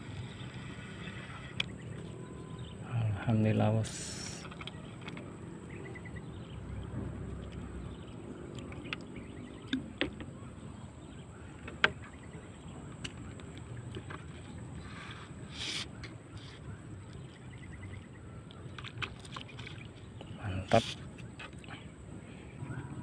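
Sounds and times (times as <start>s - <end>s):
knocks and clicks against boat: 6.8s - 14.6s, 16.0s - 21.8s.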